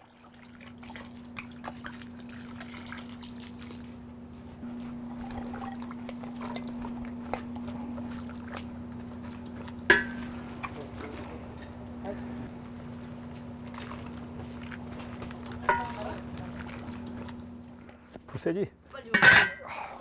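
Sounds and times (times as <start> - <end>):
liquid pouring into water: 0.0 - 4.0, 5.1 - 11.0
steady low hum: 0.0 - 20.0.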